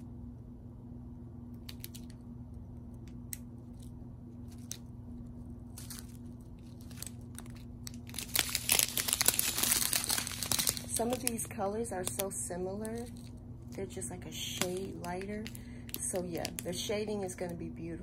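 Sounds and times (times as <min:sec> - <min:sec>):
steady low hum: 0:00.0 - 0:18.0
plastic bags crinkling: 0:03.7 - 0:04.9, 0:05.7 - 0:17.5.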